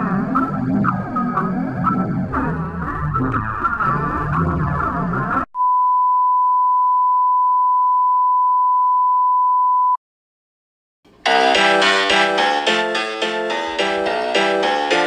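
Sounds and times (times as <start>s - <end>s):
keyboard music: 11.1s - 15.0s
music: 11.1s - 15.0s.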